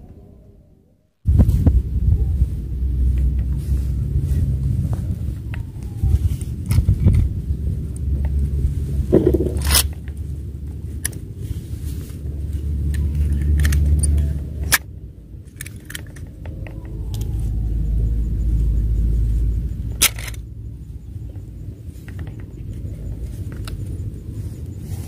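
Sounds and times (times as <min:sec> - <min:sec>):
wind buffeting microphone: 0:01.2 - 0:25.0
fishing gear clicks and rustle: 0:04.4 - 0:18.3, 0:19.0 - 0:25.0.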